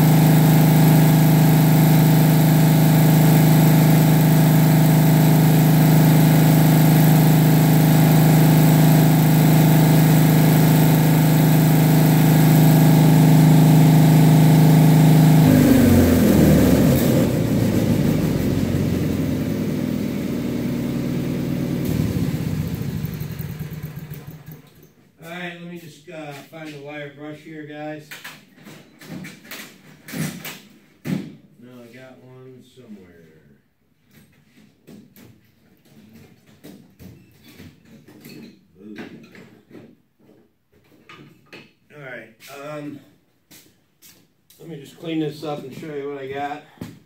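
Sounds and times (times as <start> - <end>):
engine running and winding down: 0.0 - 24.8.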